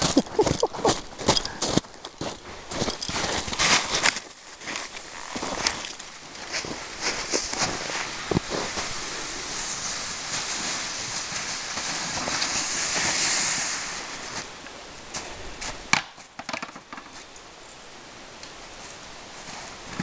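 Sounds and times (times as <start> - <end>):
footsteps crunching in snow: 0.0 - 15.9
plastic sled scraping over snow: 3.1 - 14.5.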